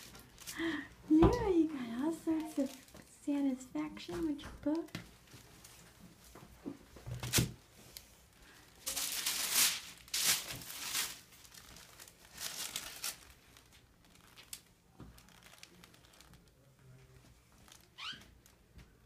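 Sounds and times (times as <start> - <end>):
paper sheet crinkling: 7.2 - 18.6.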